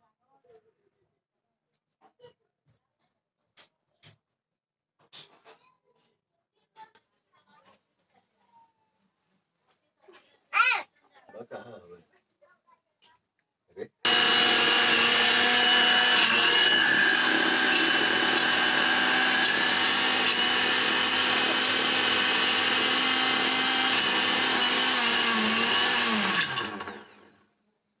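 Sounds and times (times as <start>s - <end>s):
mixer grinder motor whining: 14.1s - 27.4s.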